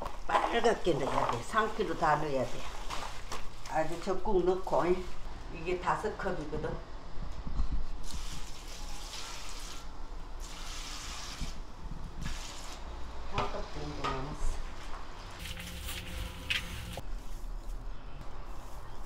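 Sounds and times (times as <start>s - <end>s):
liquid pouring and splashing: 8.0s - 11.6s.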